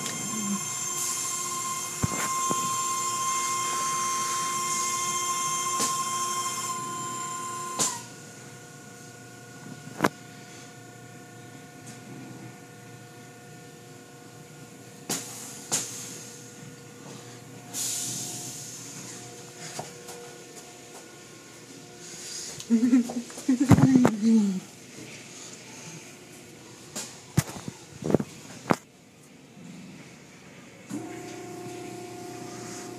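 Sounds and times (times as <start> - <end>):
high-pitched machinery whine: 0.0 - 23.8, 30.9 - 32.9.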